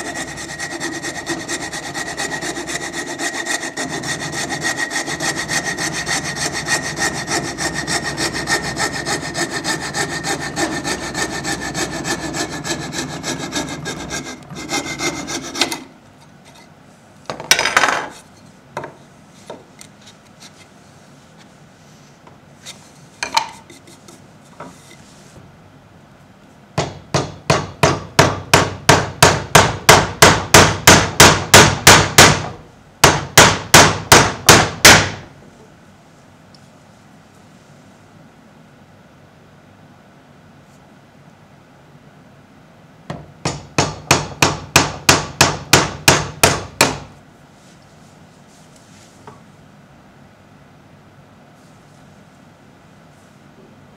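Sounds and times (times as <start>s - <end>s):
saw cutting wood: 0.0s - 15.8s.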